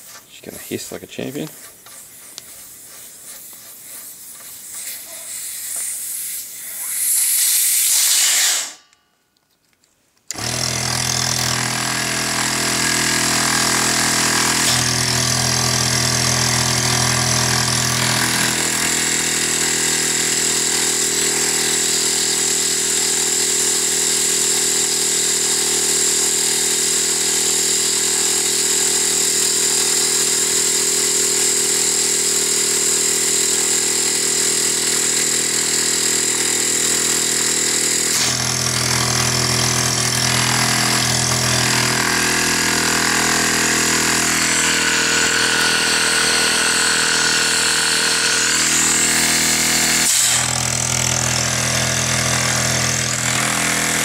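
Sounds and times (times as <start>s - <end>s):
air compressor running: 0.0s - 8.8s, 10.3s - 54.0s
air hissing from valve: 1.4s - 8.8s.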